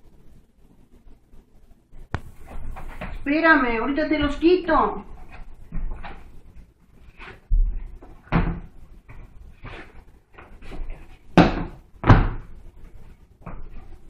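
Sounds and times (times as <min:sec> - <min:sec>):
boots thumping on hard floor: 0:11.4 - 0:12.5.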